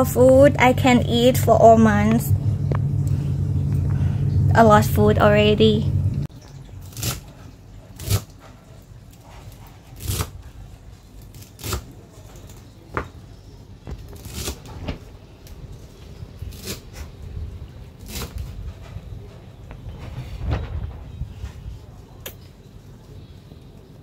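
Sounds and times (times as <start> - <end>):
knife cutting celery on wooden board: 8.0 - 8.4, 9.8 - 10.4.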